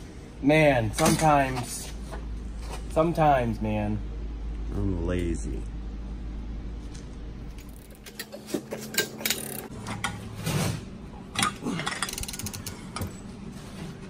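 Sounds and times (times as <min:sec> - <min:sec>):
ratchet clicking: 0:11.8 - 0:12.8.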